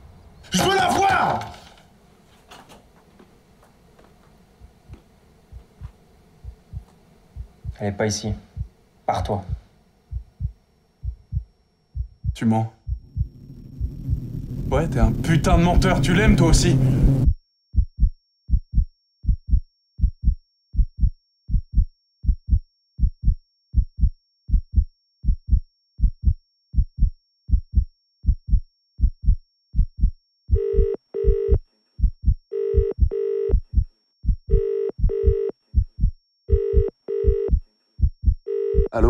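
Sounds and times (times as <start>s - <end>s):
heartbeat double thump: 4.6s - 7.8s, 8.5s - 8.7s, 9.4s - 14.6s, 17.0s - 39.0s
telephone ringing: 30.6s - 31.6s, 32.5s - 33.6s, 34.5s - 35.5s, 36.5s - 37.5s, 38.5s - 39.0s.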